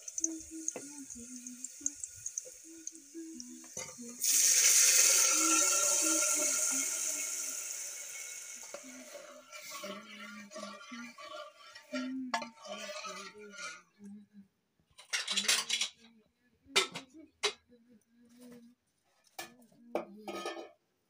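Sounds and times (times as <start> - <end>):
loud sizzle of food poured in oil: 0.0 - 9.8
onions crackling in hot oil: 0.0 - 9.9.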